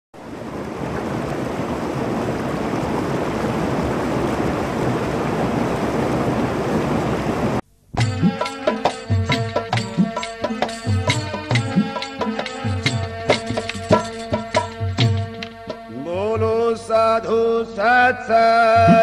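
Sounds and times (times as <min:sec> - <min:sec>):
devotional music with tabla: 0:08.0 - 0:19.0.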